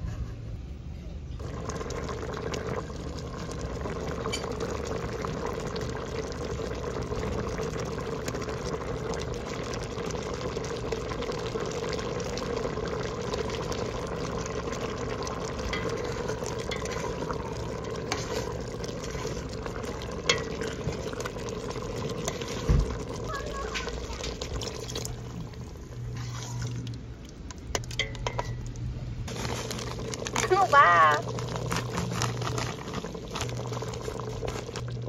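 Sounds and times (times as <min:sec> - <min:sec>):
coconut milk simmering and bubbling: 0:00.0 - 0:35.0
metal spoon clinking on pot: 0:27.8 - 0:28.6.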